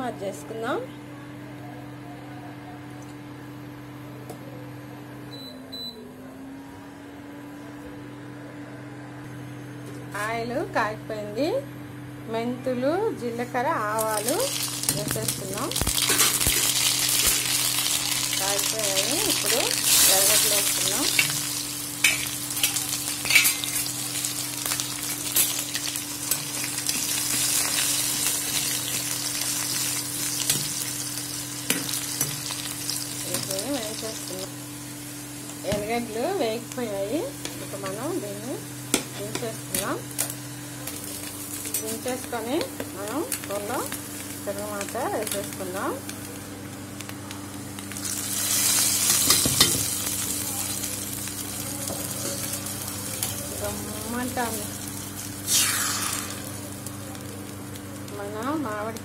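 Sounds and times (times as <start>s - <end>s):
onions sizzling in hot oil: 13.7s - 59.0s.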